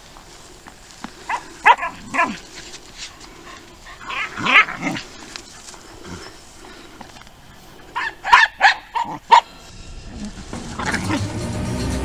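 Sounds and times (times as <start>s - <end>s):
dog barking: 1.3s - 2.4s, 8.0s - 9.5s.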